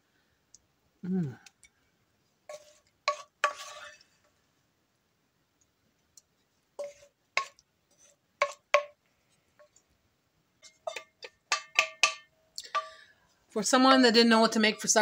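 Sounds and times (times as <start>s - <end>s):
spoon scraping a frying pan: 2.5s - 4.3s, 6.8s - 9.0s, 10.6s - 13.0s.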